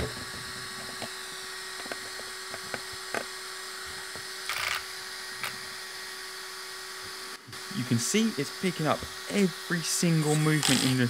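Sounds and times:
servo whirr: 0.0s - 6.2s, 7.0s - 11.0s
servo clicks: 4.5s - 5.6s.

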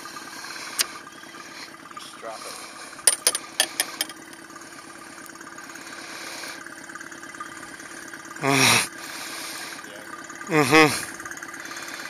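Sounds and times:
outboard motor idling: 0.0s - 12.0s
person humming: 10.5s - 11.0s.

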